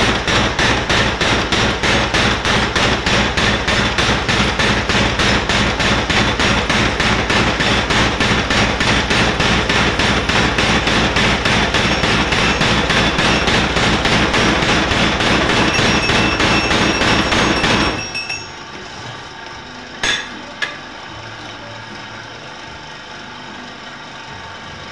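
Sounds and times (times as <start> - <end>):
power hammer pounding steel: 0.0 - 18.7
machine hum: 0.0 - 24.9
metal clanks: 10.4 - 18.6, 20.0 - 20.8.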